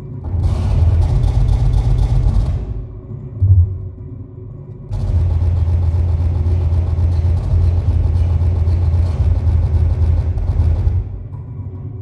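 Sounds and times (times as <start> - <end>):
steady low hum: 0.0 - 12.0
dense electronic hiss noise: 2.4 - 5.4.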